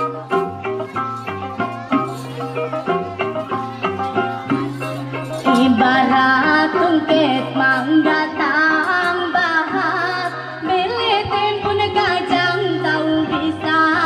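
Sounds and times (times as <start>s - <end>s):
instrumental accompaniment: 0.0s - 14.0s
woman singing: 5.4s - 14.0s.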